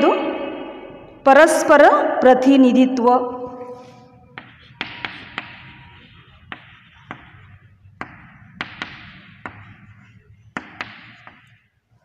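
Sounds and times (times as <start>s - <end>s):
chalk tapping on blackboard: 4.3s - 12.0s.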